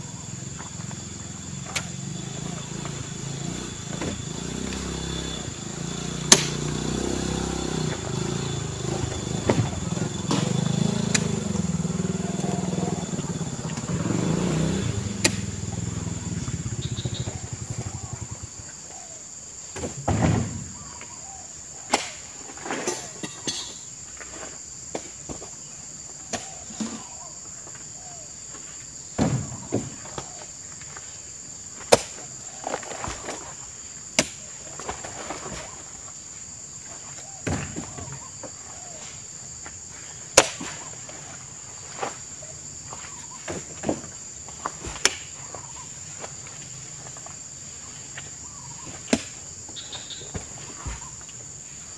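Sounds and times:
high insect drone: 0:00.0 - 0:51.9
fruit bunches thudding into truck: 0:19.7 - 0:20.8, 0:29.1 - 0:30.4, 0:37.4 - 0:38.3.

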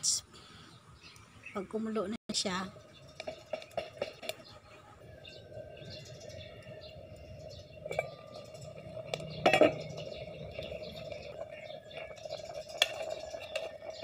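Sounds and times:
wood fire crackling: 0:02.6 - 0:14.0
pot lid metallic clatter: 0:07.8 - 0:14.0.

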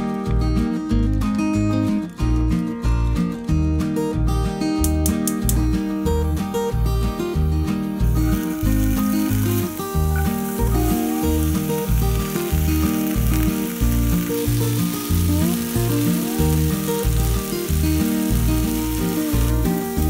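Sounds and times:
background music with bass line: 0:00.0 - 0:20.0
vegetables sizzling in hot oil: 0:06.6 - 0:20.0.

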